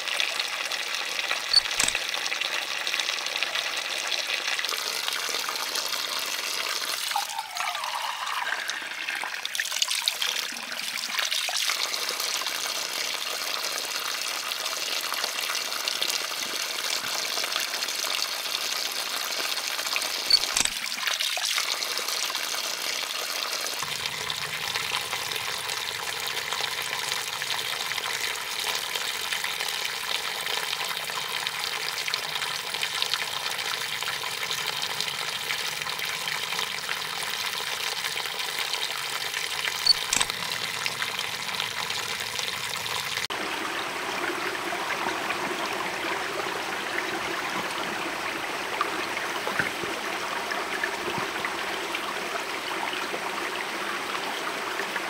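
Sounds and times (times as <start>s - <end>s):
sharp clicks: 1.5s - 2.0s, 20.3s - 20.8s, 39.8s - 40.4s.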